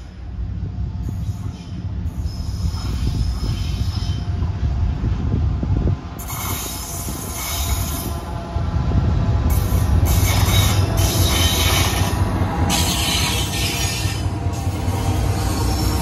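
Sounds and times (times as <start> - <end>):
train engine and wheel rumble: 0.0 - 16.0
wheel-on-rail squeal: 1.2 - 4.3, 6.2 - 8.1, 10.1 - 16.0.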